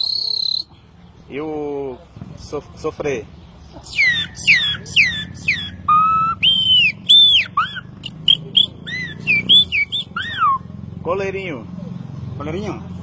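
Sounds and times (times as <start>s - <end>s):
man whistling through fingers: 0.0s - 0.7s, 3.9s - 10.7s.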